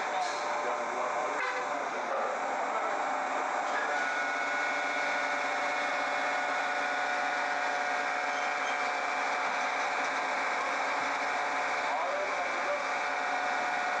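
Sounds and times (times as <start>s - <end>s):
heavy machinery whining drone: 0.0s - 14.0s.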